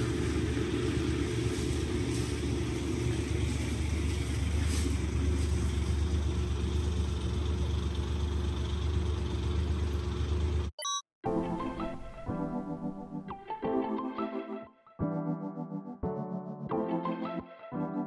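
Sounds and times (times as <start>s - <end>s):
truck engine idling: 0.0s - 10.7s.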